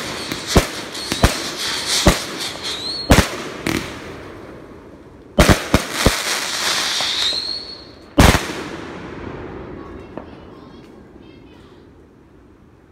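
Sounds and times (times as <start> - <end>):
thin rising firework whistle: 0.0 - 3.2, 6.4 - 8.0
fireworks bangs: 0.0 - 4.5, 5.4 - 11.2
crackling fireworks hiss: 0.0 - 12.9.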